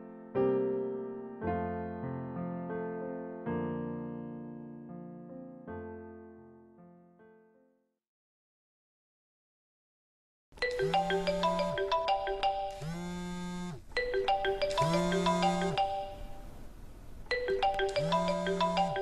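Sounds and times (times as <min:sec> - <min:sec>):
phone ringtone marimba melody: 0:10.6 - 0:16.5, 0:17.3 - 0:19.0.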